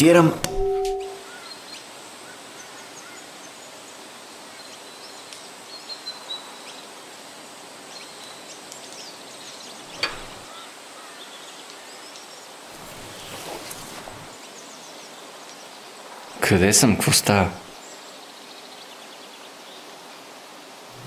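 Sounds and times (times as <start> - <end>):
steady background hiss: 0.0 - 21.0
birds chirping: 8.0 - 15.0.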